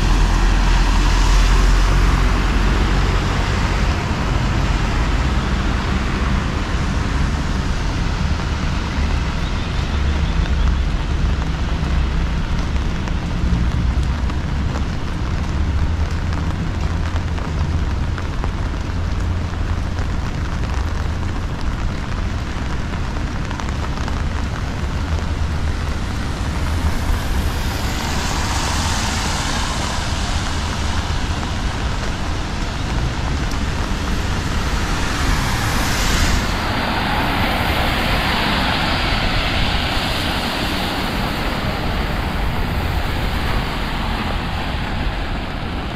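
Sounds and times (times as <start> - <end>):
heavy rain: 0.0 - 45.9
wind buffeting microphone: 24.3 - 45.9.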